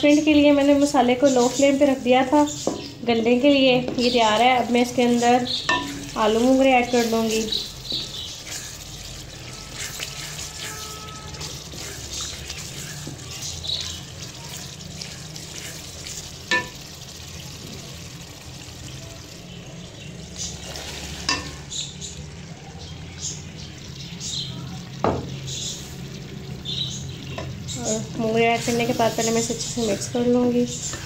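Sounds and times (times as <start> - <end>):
spices sizzling in oil: 0.0 - 31.0
wooden spoon scraping pan: 5.0 - 13.5, 20.5 - 21.6, 28.6 - 30.2.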